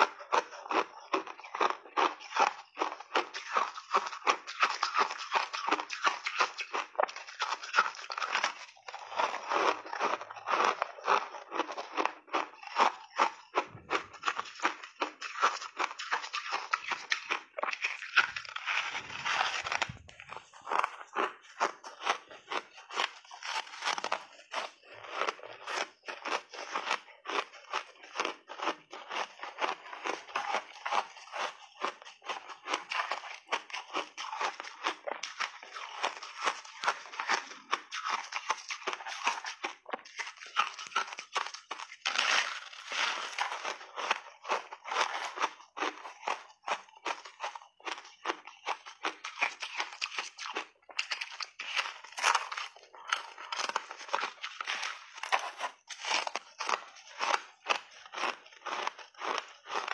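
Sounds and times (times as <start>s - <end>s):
ice crunching while chewed: 0.0s - 59.9s.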